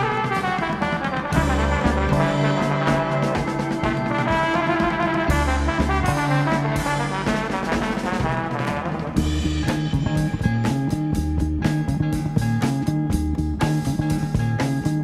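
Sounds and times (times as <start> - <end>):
jazz brass section: 0.0 - 11.2
bass: 0.0 - 15.0
drums: 0.0 - 15.0.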